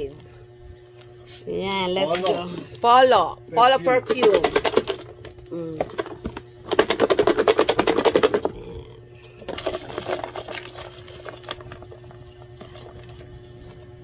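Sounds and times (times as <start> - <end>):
faint steady hum: 0.0 - 14.0
paper slips rattling in plastic box: 4.0 - 8.6, 9.4 - 13.2.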